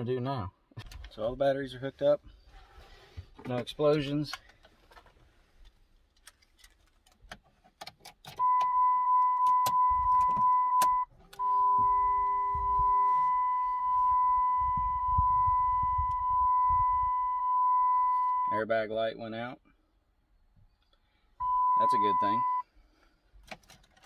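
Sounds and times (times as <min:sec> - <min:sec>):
high-pitched electronic warning tone: 0:08.4 - 0:18.6, 0:21.4 - 0:22.6.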